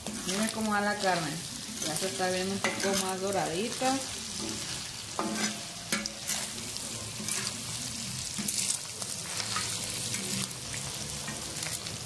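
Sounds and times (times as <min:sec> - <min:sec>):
meat sizzling: 0:00.0 - 0:12.0
spatula scraping through meat: 0:06.2 - 0:10.6.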